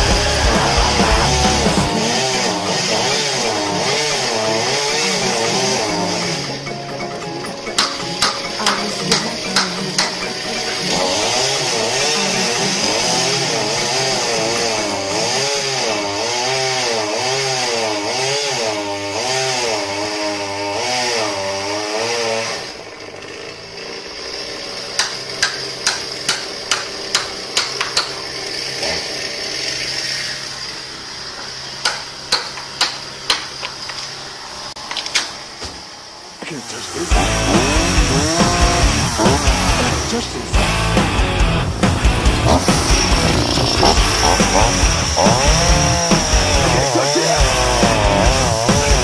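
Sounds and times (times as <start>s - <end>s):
chainsaw cutting wood: 0.0s - 49.0s
chainsaw idling: 0.0s - 49.0s.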